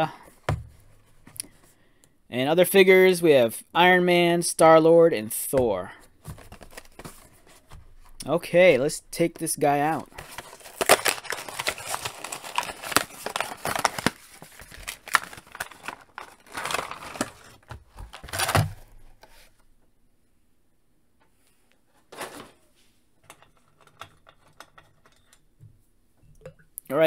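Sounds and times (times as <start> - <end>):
plastic blister tearing and crinkling: 10.1 - 19.0.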